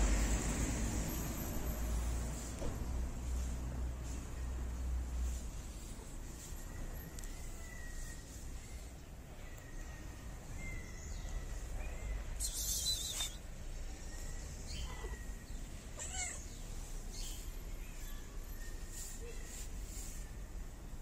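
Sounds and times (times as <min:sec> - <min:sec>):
cat meowing: 0:16.0 - 0:16.5.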